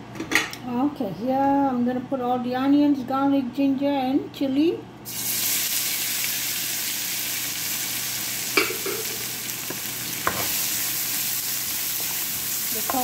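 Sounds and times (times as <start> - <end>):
vegetables sizzling in oil: 5.1 - 13.0.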